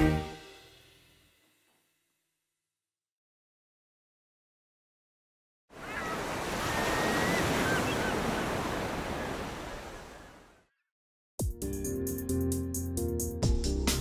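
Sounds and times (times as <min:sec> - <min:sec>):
music: 0:00.0 - 0:02.1, 0:11.4 - 0:14.0
ocean surf washing: 0:05.7 - 0:10.5.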